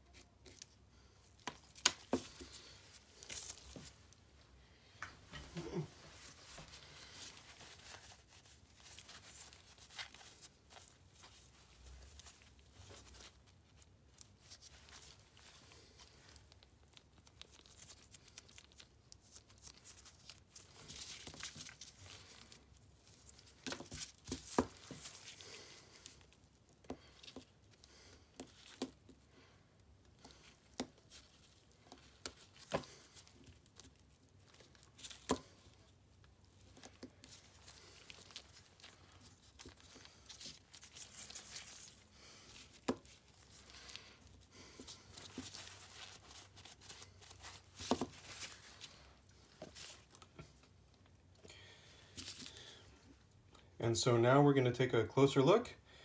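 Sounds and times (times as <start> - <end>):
floss scraping and rustling: 0.0 - 53.5.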